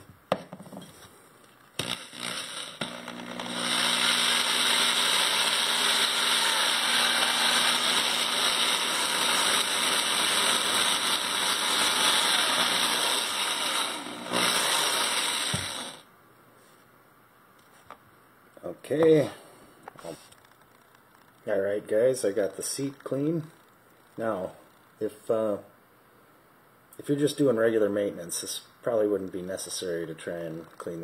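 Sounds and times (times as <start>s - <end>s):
electric drill motor hum: 1.8s - 16.0s.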